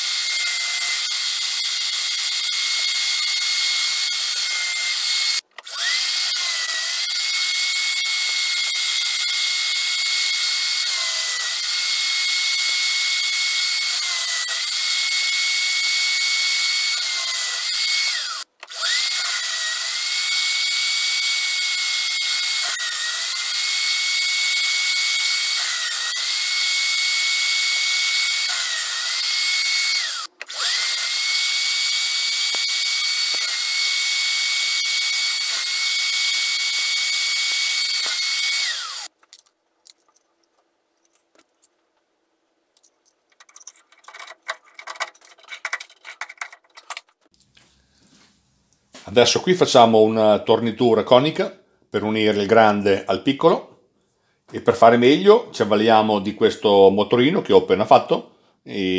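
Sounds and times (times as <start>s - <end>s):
power drill whining on metal: 0.0s - 39.2s.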